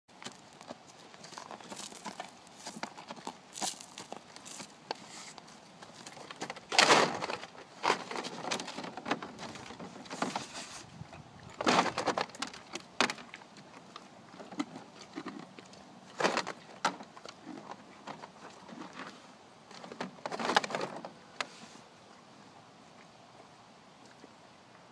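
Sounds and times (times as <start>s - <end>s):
ice scraping and knocking on plastic: 11.6s - 13.3s, 16.1s - 21.2s.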